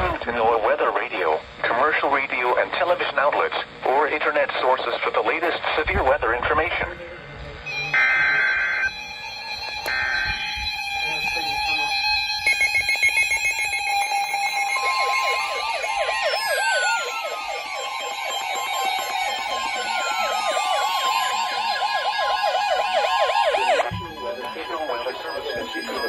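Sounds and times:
warbling siren alarms: 7.6 - 26.0
digital header rasp: 7.7 - 26.0
steady alert tone: 7.7 - 26.0.

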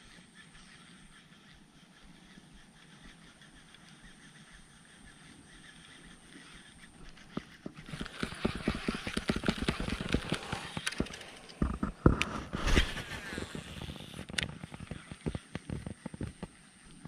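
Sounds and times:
wading through water and mud: 0.0 - 11.0.

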